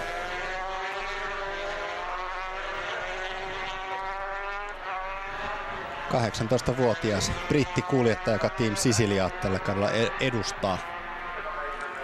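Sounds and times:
racing motorcycles at high revs: 0.0s - 12.0s.

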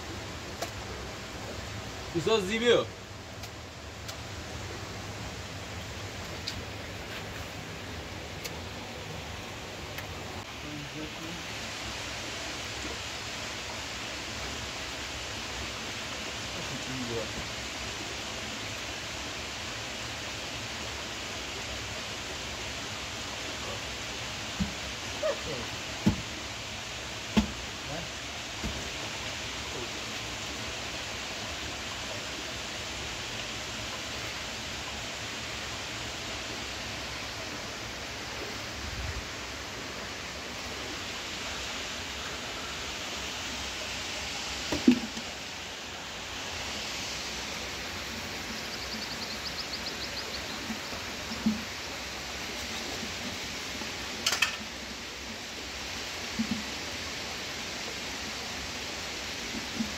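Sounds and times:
running water rushing: 0.0s - 59.9s
buckets knocking and thumping: 44.7s - 45.3s.

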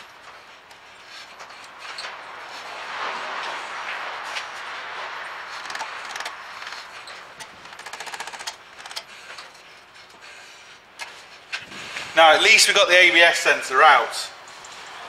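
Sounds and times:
rattle of clicks: 5.6s - 9.6s.

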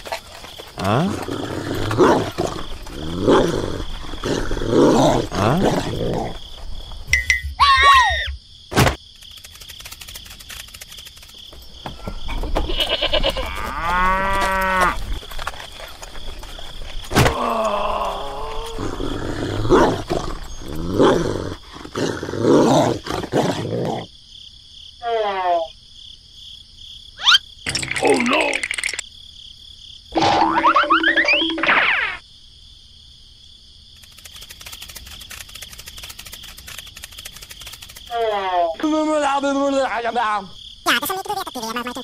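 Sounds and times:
cow mooing: 13.1s - 15.0s.

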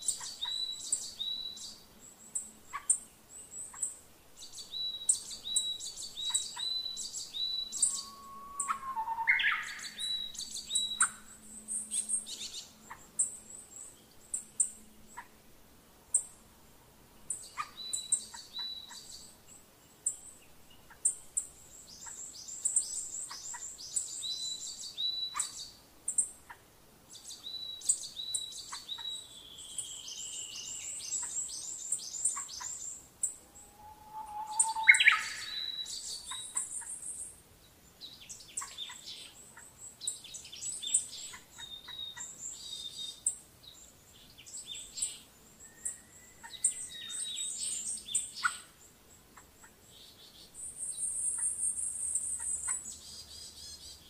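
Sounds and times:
birds chirping trills: 0.0s - 15.4s, 17.2s - 26.4s, 27.1s - 54.0s
gliding whistled bird calls: 2.7s - 15.3s, 27.2s - 37.3s, 44.4s - 48.8s.

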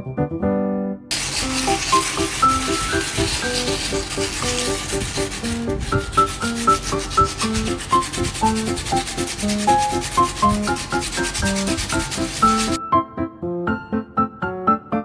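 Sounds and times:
keyboard melody music: 0.0s - 15.0s
gritty sandpaper scraping: 1.1s - 12.8s.

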